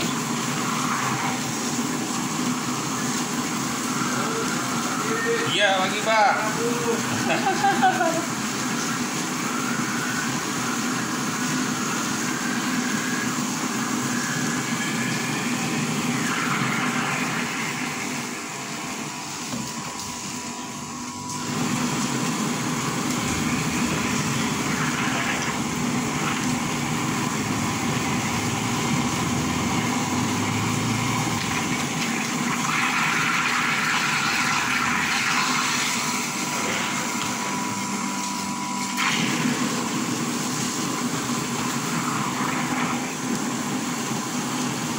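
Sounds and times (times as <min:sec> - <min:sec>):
soy milk machine grinding: 0:00.0 - 0:44.9.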